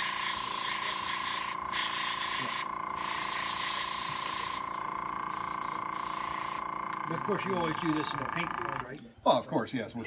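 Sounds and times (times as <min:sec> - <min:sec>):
airbrush hissing: 0:00.0 - 0:06.8
steady whine: 0:00.0 - 0:09.2.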